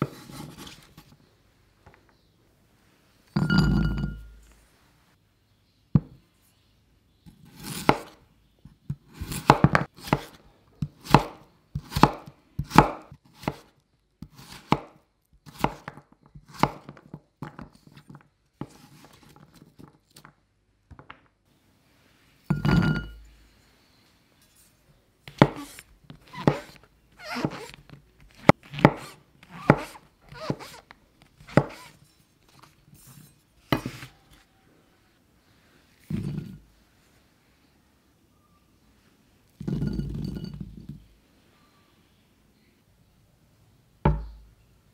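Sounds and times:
knife chopping on wooden board: 7.5s - 8.2s, 9.0s - 13.7s, 15.5s - 17.0s, 25.3s - 30.8s, 31.4s - 32.0s, 44.1s - 44.4s.

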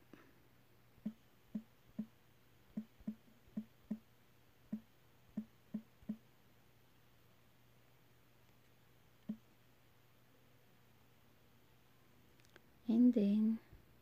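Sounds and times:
typing taps on smartphone screen: 2.7s - 4.0s.

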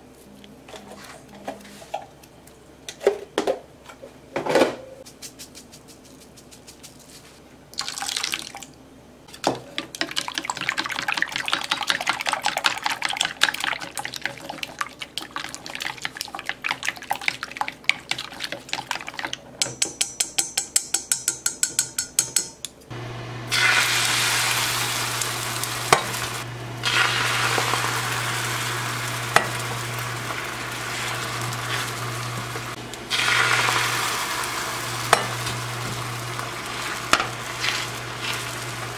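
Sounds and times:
egg batter sizzling: 9.3s - 19.6s, 22.9s - 38.9s
chopsticks beating eggs in bowl: 9.3s - 22.5s, 29.1s - 34.2s, 34.9s - 38.9s
induction hob humming: 22.2s - 38.9s
pan heating hiss: 22.9s - 38.9s.

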